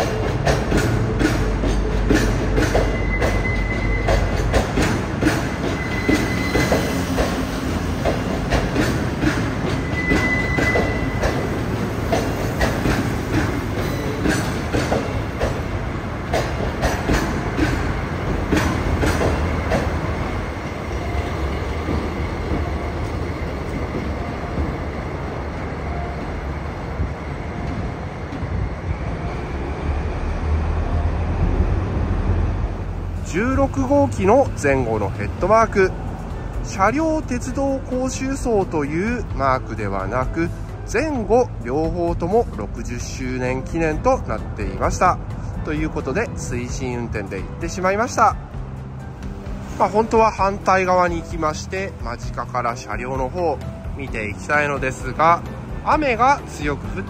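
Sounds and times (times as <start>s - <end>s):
train wheels clattering over rail joints: 0.0s - 25.0s
diesel locomotive engine running: 0.0s - 57.0s
wheel squeals: 2.6s - 4.6s, 5.3s - 7.4s, 9.3s - 11.7s.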